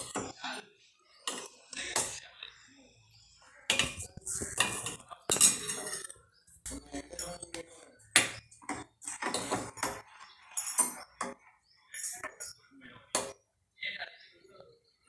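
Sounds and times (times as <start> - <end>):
ladle scraping a saucepan: 3.7 - 6.1.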